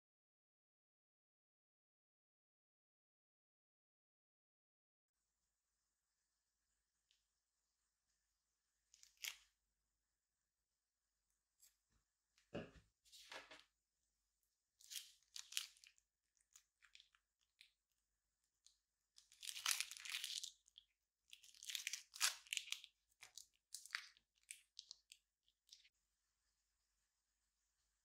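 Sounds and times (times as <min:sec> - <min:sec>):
plastic bag crinkling: 0:14.8 - 0:15.9, 0:19.3 - 0:20.8.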